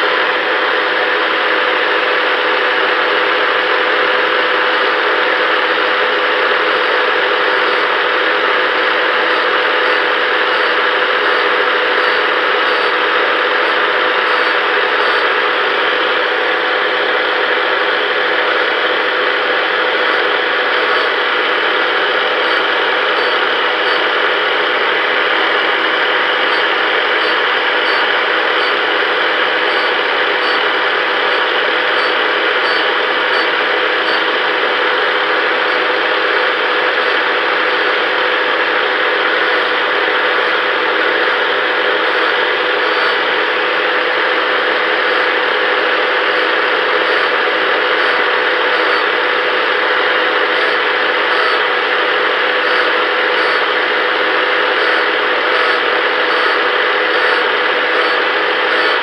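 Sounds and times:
angle grinder motor: 2.8 - 59.0
grinding disc hissing on metal: 44.8 - 49.1, 49.9 - 51.7, 52.5 - 59.0.

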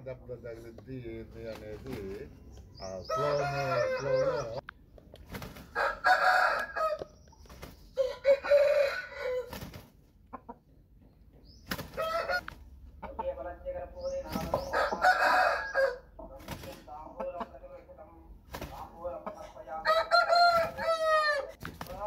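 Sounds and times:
roosters crowing: 2.9 - 4.6, 5.6 - 7.2, 7.9 - 9.9, 11.8 - 12.7, 14.3 - 16.2, 19.5 - 22.0.

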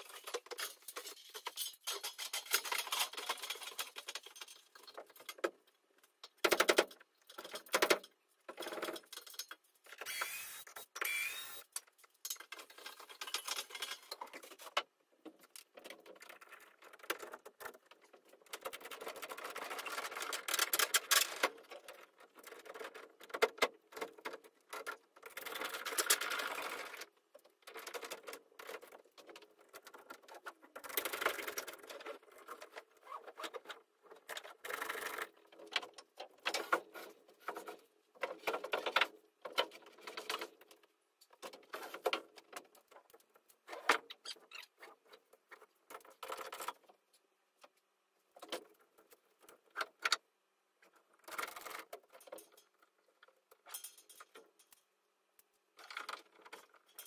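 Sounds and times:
timber clattering and scraping: 0.0 - 9.9, 11.9 - 27.0, 27.7 - 47.0.

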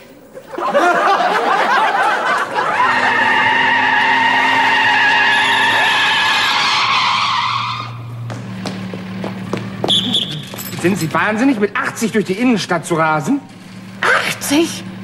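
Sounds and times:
car tyres squealing: 2.2 - 12.1, 13.4 - 15.0
car engine idling: 2.5 - 15.0.

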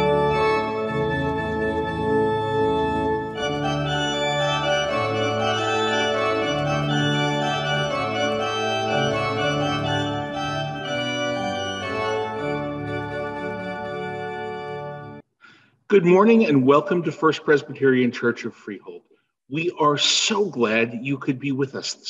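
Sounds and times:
organ playing slow chords: 0.0 - 15.2.

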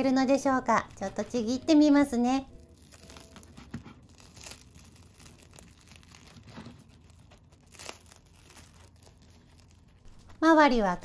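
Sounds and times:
toast crust tearing: 2.5 - 10.4.

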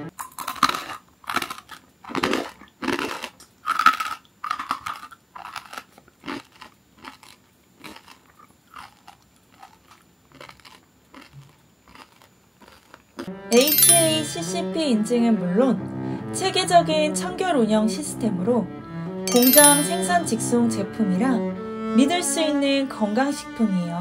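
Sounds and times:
crunching rice crackers being chewed: 0.1 - 13.3.

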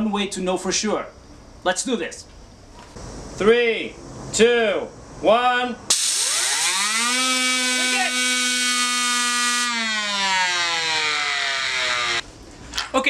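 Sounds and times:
turbine whine: 2.3 - 12.8
rush of compressed air: 5.9 - 6.8.

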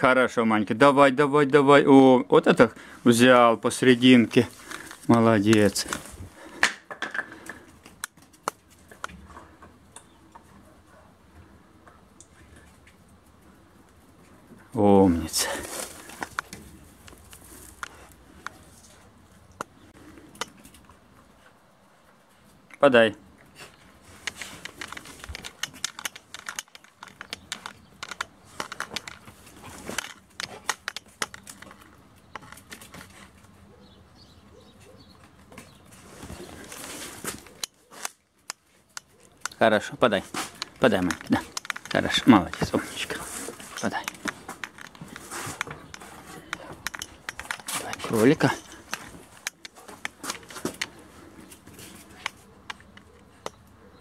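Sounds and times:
sharp clicks and taps: 24.2 - 29.4, 30.0 - 33.1, 37.4 - 39.6, 40.3 - 43.2, 43.8 - 51.0.

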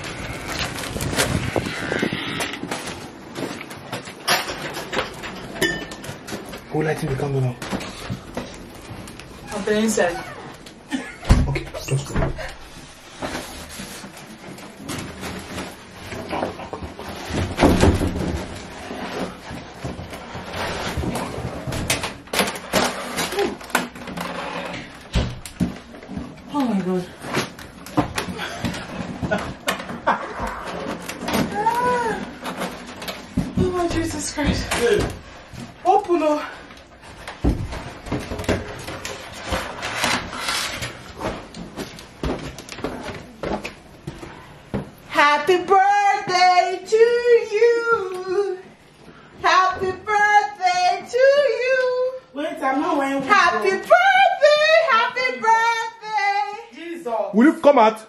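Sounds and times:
crinkly foil rustle: 0.0 - 10.8, 12.9 - 17.4
rustling and handling noises: 0.0 - 45.2.

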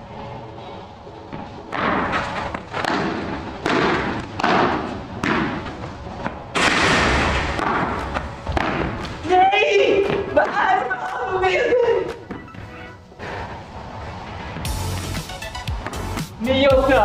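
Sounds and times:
ball bouncing off court: 1.3 - 9.2
padel ball hit with rackets: 2.7 - 5.7, 6.6 - 9.2.

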